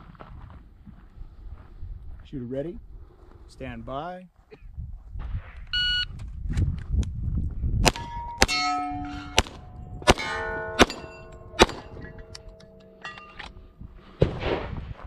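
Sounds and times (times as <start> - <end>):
handgun shots: 7.9 - 13.0
steel plate ringing clang: 7.9 - 13.6.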